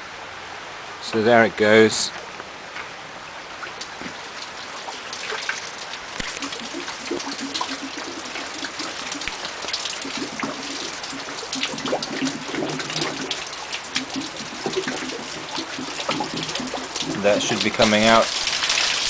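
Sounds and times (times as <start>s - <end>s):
drip-like ticks and splashes: 2.1s - 19.0s
water gurgling through pipes: 3.7s - 19.0s.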